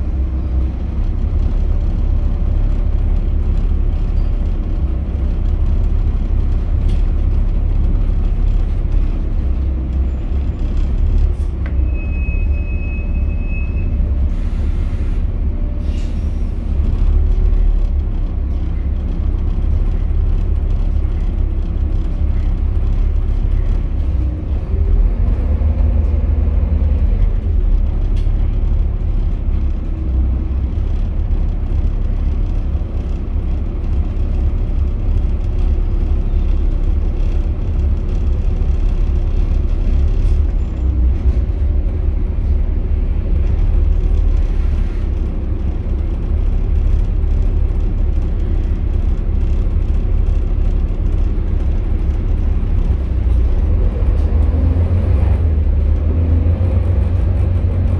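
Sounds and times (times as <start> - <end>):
bus engine drone: 0.0 - 57.9
air brake hiss: 15.8 - 16.6.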